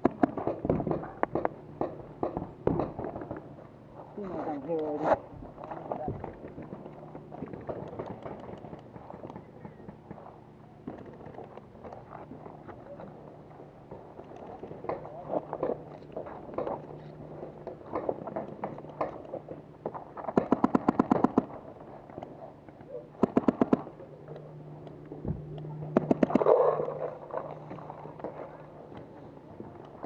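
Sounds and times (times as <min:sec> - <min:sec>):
paintball markers firing rapidly: 0:00.0 - 0:03.4, 0:06.3 - 0:12.0, 0:17.7 - 0:22.3, 0:23.1 - 0:24.0, 0:25.9 - 0:27.0.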